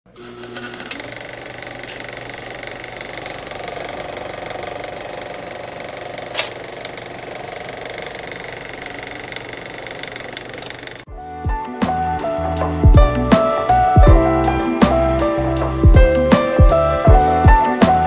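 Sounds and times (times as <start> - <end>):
small machine clattering: 0.4 - 11.1
sharp click: 6.2 - 7.0.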